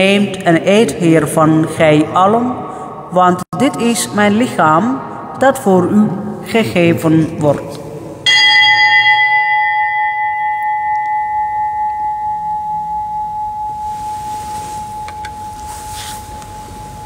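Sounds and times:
altar bell ringing: 0:08.2 - 0:17.0.

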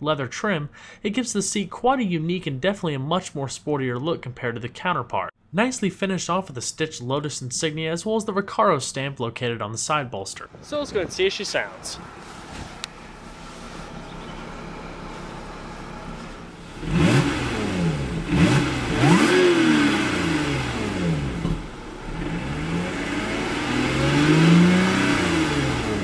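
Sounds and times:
car engine idling and revving: 0:12.0 - 0:26.0
supercharger whine: 0:12.8 - 0:26.0.

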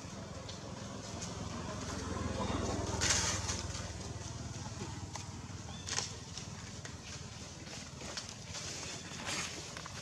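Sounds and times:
footsteps in dry leaves: 0:05.5 - 0:10.0.

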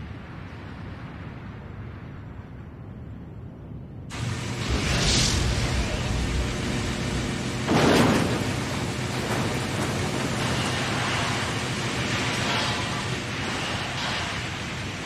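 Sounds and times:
rumbling wash of noise: 0:00.0 - 0:15.0
rushing surge: 0:04.1 - 0:15.0.

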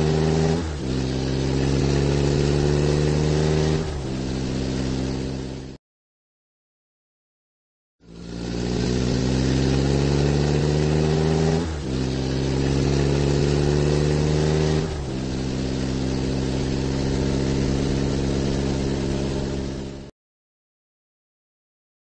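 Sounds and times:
vehicle engine accelerating: 0:00.0 - 0:05.8, 0:08.0 - 0:20.1.

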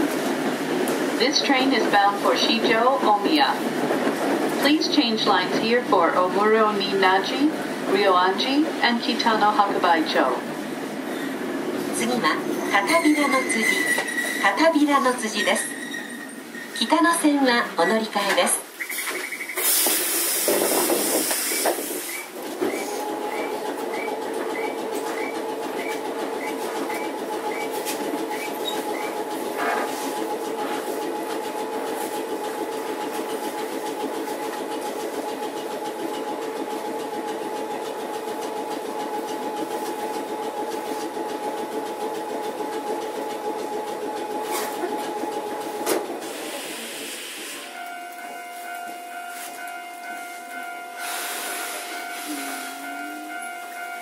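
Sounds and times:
loud burst of hiss: 0:19.6 - 0:22.2.

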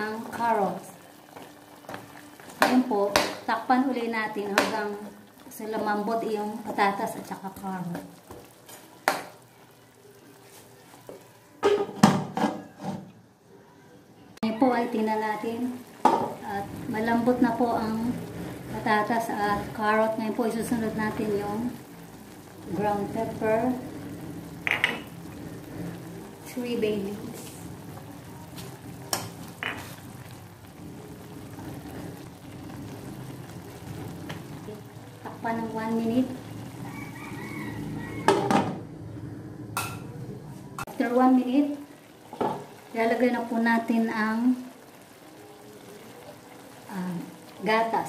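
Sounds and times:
faint simmer: 0:00.0 - 0:12.0, 0:13.2 - 0:48.0
metal spoon knocking pan: 0:02.6 - 0:03.5, 0:24.6 - 0:25.1, 0:29.1 - 0:29.9, 0:38.3 - 0:38.8
stew bubbling: 0:15.1 - 0:38.5, 0:40.1 - 0:48.0
glass lid clattering on metal wok: 0:24.7 - 0:25.1.

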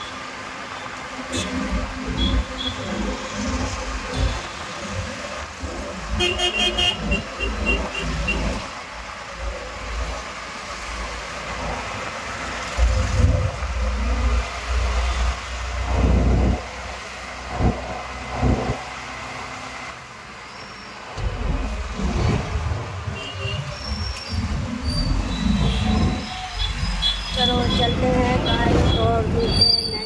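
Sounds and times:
road traffic: 0:00.0 - 0:30.0
low rumbling surges: 0:08.8 - 0:19.3, 0:21.0 - 0:30.0.

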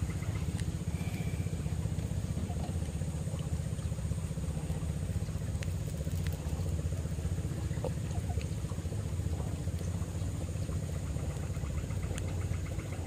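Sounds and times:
small boat engine idling: 0:00.0 - 0:13.0.

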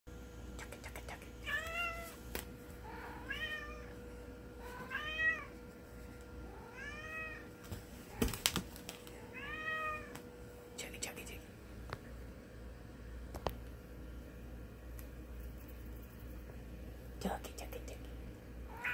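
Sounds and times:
cat meowing: 0:03.1 - 0:03.9, 0:04.8 - 0:05.5, 0:06.6 - 0:07.5, 0:09.3 - 0:10.1.

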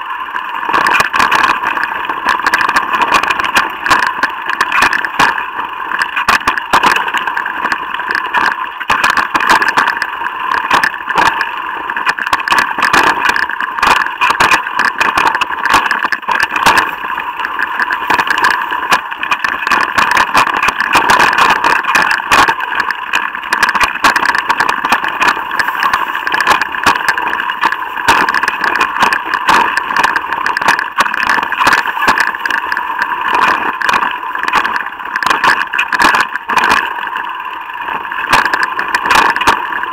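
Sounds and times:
bike rolling rattle: 0:00.0 - 0:39.9
bike knocks and clatters: 0:12.1 - 0:36.9.

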